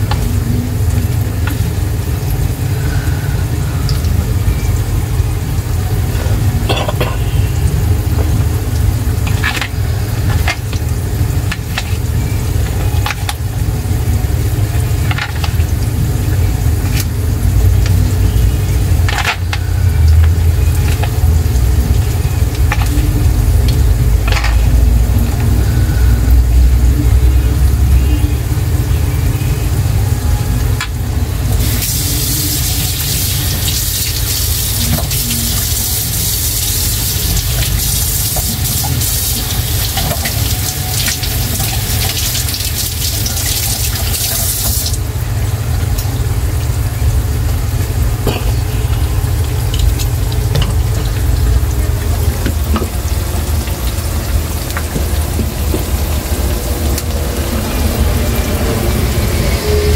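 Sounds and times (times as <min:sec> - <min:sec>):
kitchen tap running: 0:00.0 - 0:27.9, 0:30.4 - 0:59.7
grease frying and popping: 0:00.0 - 0:59.9
low steady rumble: 0:00.0 - 0:59.9.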